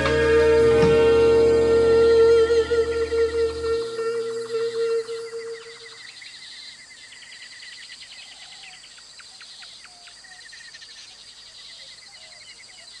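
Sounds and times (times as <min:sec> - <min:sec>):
faint whistled calls: 0:00.0 - 0:10.4
birds and insects chirping: 0:00.0 - 0:13.0.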